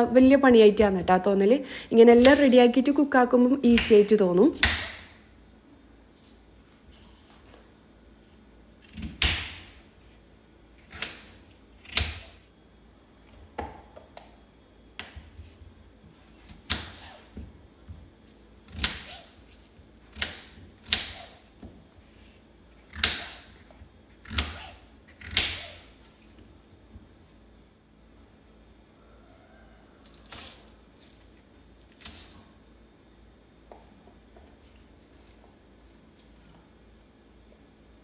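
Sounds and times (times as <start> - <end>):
knife chopping on wooden board: 4.6 - 5.0.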